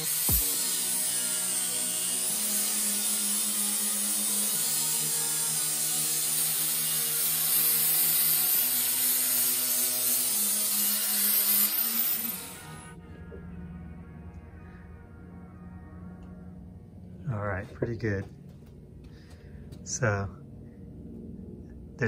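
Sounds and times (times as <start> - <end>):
power tool grinding metal: 0.0 - 13.0
background music: 0.0 - 22.0.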